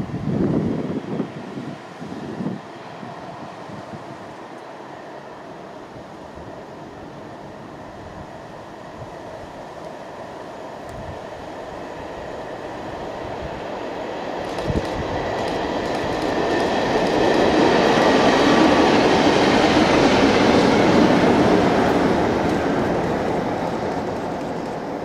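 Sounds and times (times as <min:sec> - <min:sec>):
diesel locomotive engine: 0:00.0 - 0:25.0
wheels on rails: 0:14.4 - 0:25.0.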